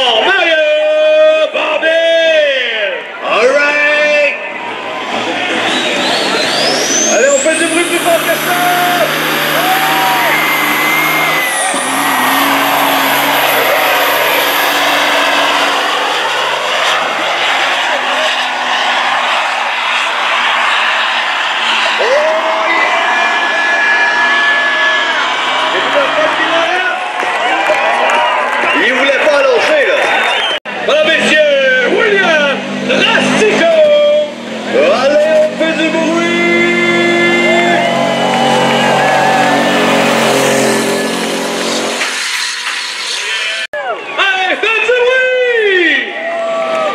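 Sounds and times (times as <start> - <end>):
diesel truck engine under load: 4.7 - 28.1, 30.4 - 43.7.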